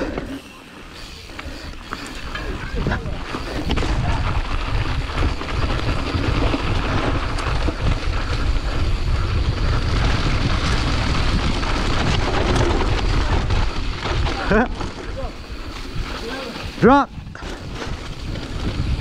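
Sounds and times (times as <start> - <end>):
bike tyres rolling on dirt: 0.0 - 19.0
wind buffeting microphone: 1.0 - 19.0.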